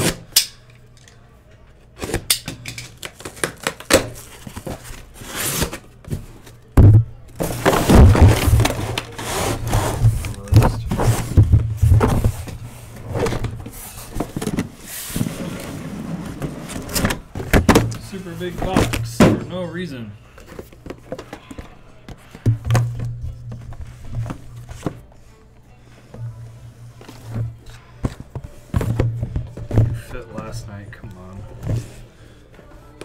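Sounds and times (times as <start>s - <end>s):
cardboard tearing and rustling: 3.4s - 5.9s
cardboard scraping: 7.4s - 17.9s.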